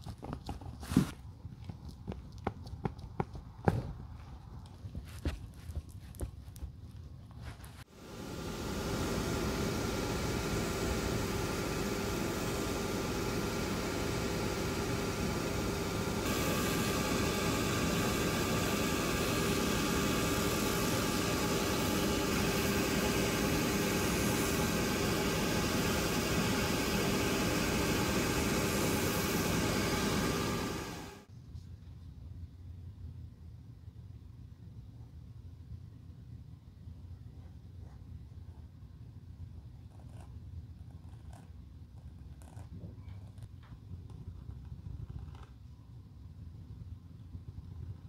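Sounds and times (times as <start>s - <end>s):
spinning cutter wheel trimming heel: 8.3s - 31.2s.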